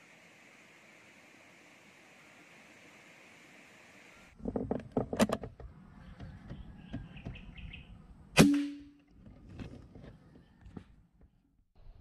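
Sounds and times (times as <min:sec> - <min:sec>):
high bird chirps: 0:06.0 - 0:08.0
air rifle shot: 0:08.4 - 0:08.8.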